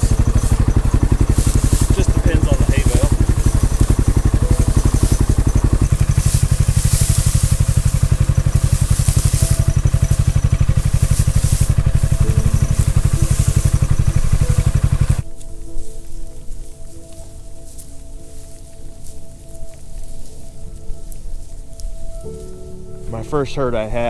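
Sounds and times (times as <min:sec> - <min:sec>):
utility vehicle engine idling: 0:00.0 - 0:15.4
hay rustling: 0:00.0 - 0:24.0.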